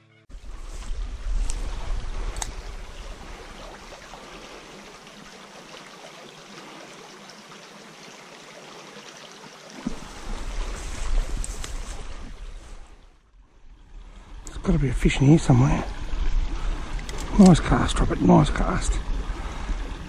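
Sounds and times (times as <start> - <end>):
wind buffeting microphone: 0.3 - 4.5, 9.9 - 13.0, 14.0 - 20.0
creek trickling: 0.3 - 20.0.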